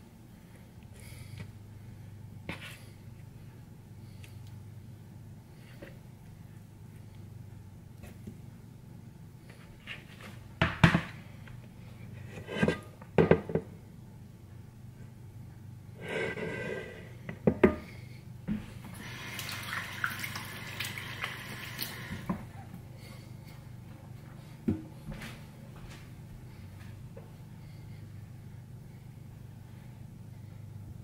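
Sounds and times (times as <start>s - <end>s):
running water: 18.8s - 22.6s.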